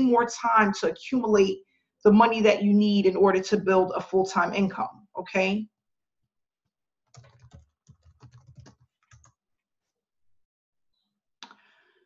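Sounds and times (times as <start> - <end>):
keyboard typing: 7.1 - 9.4.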